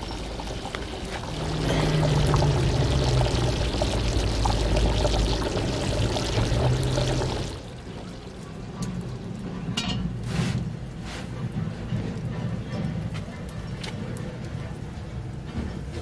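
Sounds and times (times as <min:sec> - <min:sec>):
liquid pouring into container: 0:00.0 - 0:09.0.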